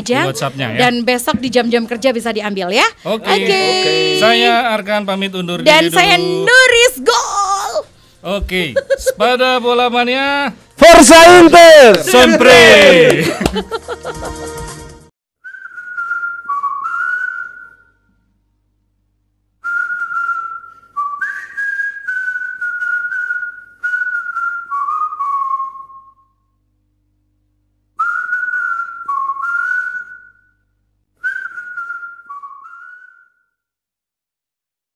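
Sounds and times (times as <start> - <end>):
person whistling a tune: 15.4 - 18.0, 19.6 - 26.4, 28.0 - 30.6, 31.2 - 33.6.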